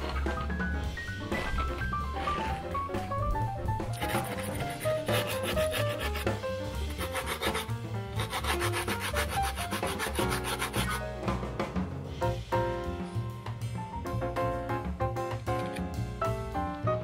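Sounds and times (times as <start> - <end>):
background music with beat: 0.0 - 17.0
abrasive rubbing on wood: 4.0 - 11.0.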